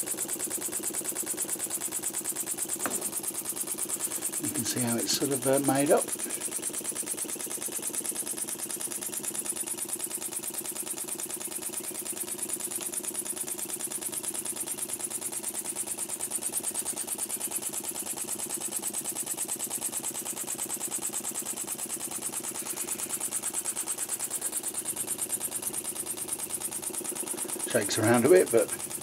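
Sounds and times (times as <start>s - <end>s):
model engine exhaust puffs: 0.0s - 29.0s
steady air hiss: 22.4s - 24.8s.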